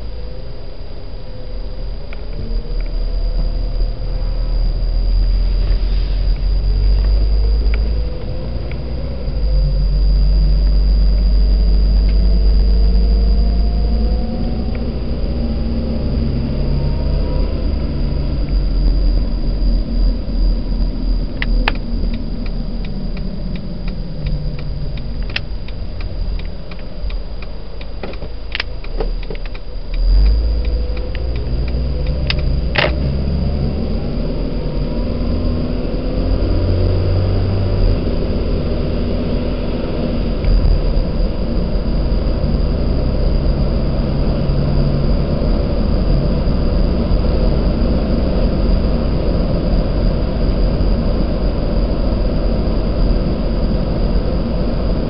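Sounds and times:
road rumble: 0.0 - 55.0
van engine: 0.0 - 55.0
regular ticks: 21.4 - 33.0.

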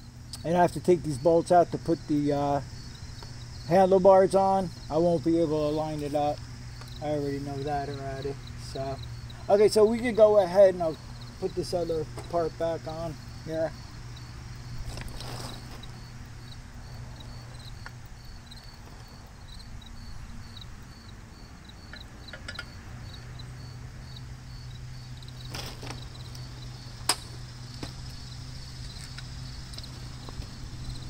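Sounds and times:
insects chirping: 0.0 - 31.0
sharp metallic clicks and taps: 21.9 - 22.8.

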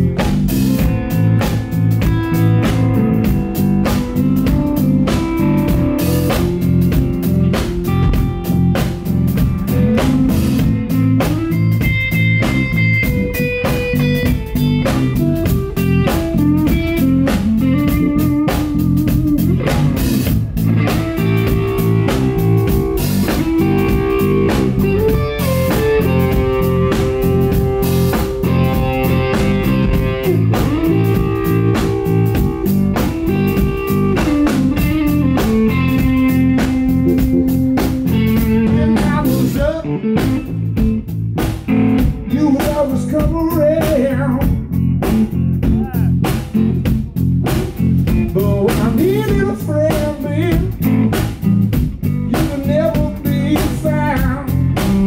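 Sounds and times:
drum kit: 0.0 - 55.0
electric guitar bending notes: 0.0 - 55.0.

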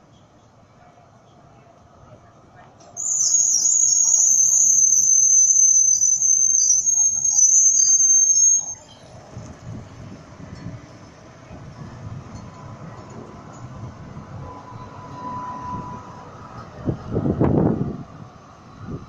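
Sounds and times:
low rumble of tram rolling: 0.0 - 19.0
tram wheels squealing: 3.0 - 9.3, 12.4 - 16.8.

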